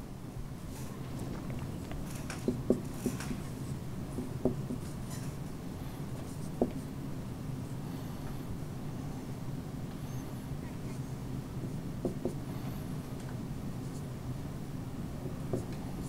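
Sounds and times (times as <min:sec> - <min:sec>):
steady low hum: 0:00.0 - 0:16.0
marker scratching on whiteboard: 0:02.5 - 0:05.3, 0:11.7 - 0:12.5, 0:15.2 - 0:16.0.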